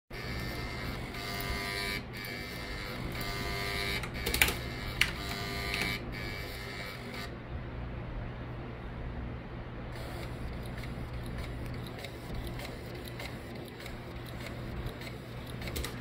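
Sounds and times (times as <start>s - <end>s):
floppy drive motor buzzing: 0.1s - 7.4s, 9.9s - 16.0s
sharp clicks: 4.0s - 6.0s, 10.1s - 16.0s.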